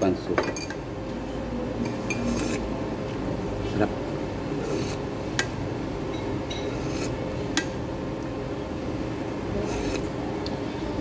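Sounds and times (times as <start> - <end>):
room hum: 0.0 - 11.0
utensils scraping: 1.9 - 2.7, 4.6 - 5.0, 6.5 - 7.7, 9.6 - 10.1
tableware clinking: 6.1 - 7.1.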